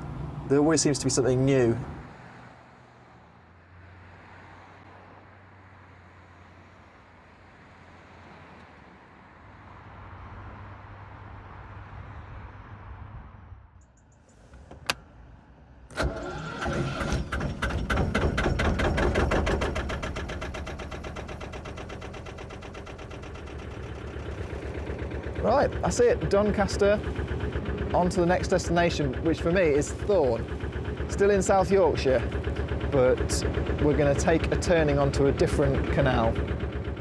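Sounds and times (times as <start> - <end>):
diesel engine starting and idling: 14.3 - 37.0.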